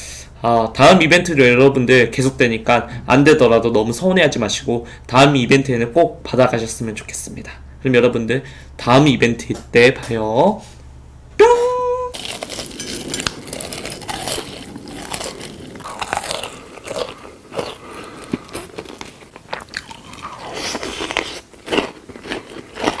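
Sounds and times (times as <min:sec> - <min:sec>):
crunchy food being chewed: 0:12.2 - 0:23.0.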